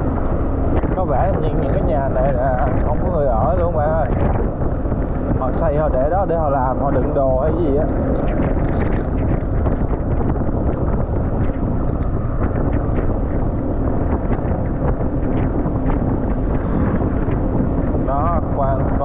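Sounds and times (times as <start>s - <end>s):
motorbike engine: 0.0s - 19.0s
road noise: 0.0s - 19.0s
wind blasting on microphone: 0.0s - 19.0s.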